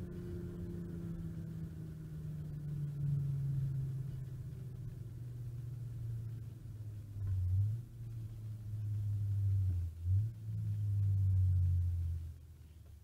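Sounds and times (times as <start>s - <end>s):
car engine droning: 0.0s - 13.0s.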